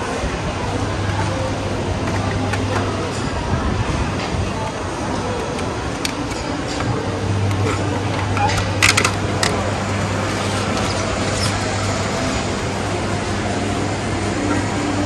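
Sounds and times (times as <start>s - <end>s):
street market background noise: 0.0s - 15.0s.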